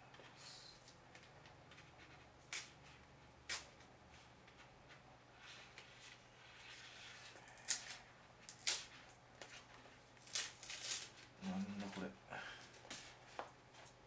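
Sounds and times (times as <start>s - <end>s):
plastic film rustling and crackling: 6.9s - 12.1s.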